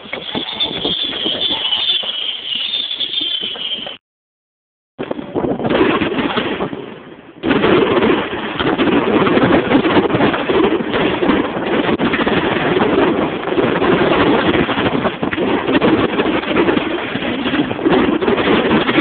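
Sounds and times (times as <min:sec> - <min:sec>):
fireworks bangs and crackles: 0:00.0 - 0:04.0, 0:05.0 - 0:19.0.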